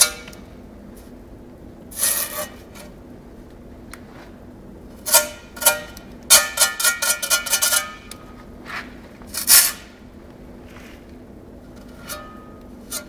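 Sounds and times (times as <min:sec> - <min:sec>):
trowel scraping and tapping brick: 0:05.1 - 0:09.8, 0:11.9 - 0:13.0.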